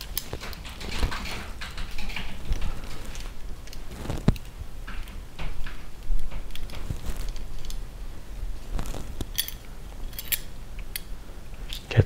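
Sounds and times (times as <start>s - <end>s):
metal tool clicks and scrapes: 9.2s - 11.1s.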